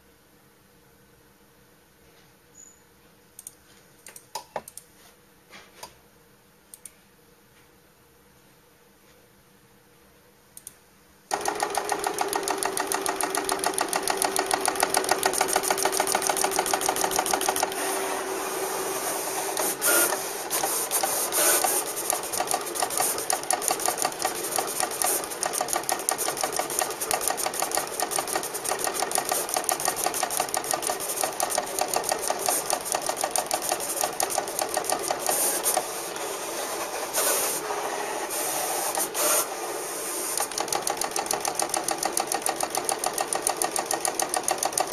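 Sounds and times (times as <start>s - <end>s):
plotter mechanical chatter: 11.3s - 39.4s, 40.3s - 44.9s
steady hum: 11.3s - 44.8s.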